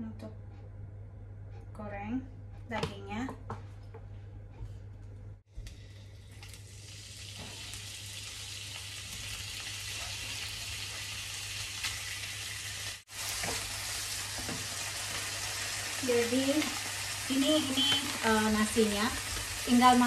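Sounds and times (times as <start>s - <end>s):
meat sizzling in a frying pan: 6.4s - 20.0s.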